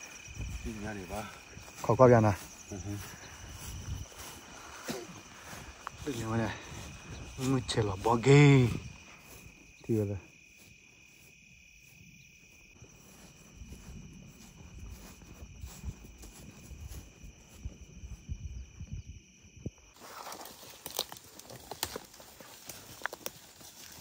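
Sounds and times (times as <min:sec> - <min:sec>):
footsteps crunching through leaf litter: 0:00.0 - 0:11.1, 0:20.0 - 0:24.0
crickets chirring: 0:00.0 - 0:24.0.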